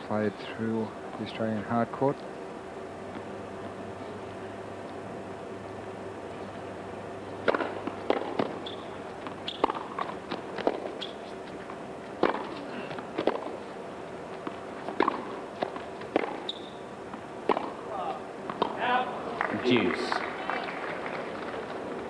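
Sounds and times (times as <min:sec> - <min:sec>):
tennis ball hit and bouncing: 0:07.4 - 0:11.2, 0:12.2 - 0:13.6, 0:14.4 - 0:17.8, 0:18.5 - 0:18.9
shoe squeaks: 0:08.6 - 0:09.8, 0:10.9 - 0:11.5, 0:16.4 - 0:16.9.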